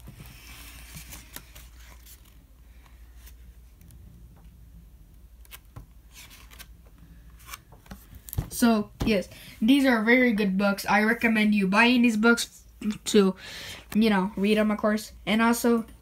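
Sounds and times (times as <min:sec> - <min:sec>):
book pages turning: 0:00.0 - 0:04.0, 0:05.4 - 0:08.5
low steady hum: 0:00.0 - 0:16.0.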